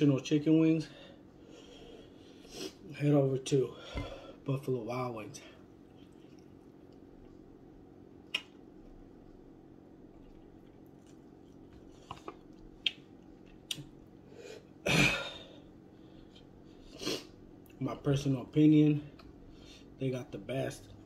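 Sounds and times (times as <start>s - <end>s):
low steady hum: 0.0s - 21.0s
mouth smacks and clicks eating: 8.3s - 8.6s, 10.1s - 14.0s.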